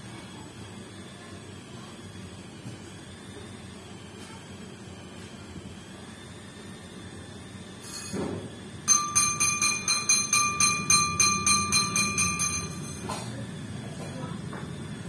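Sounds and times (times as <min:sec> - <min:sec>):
small bell rung rapidly: 0:08.9 - 0:13.1.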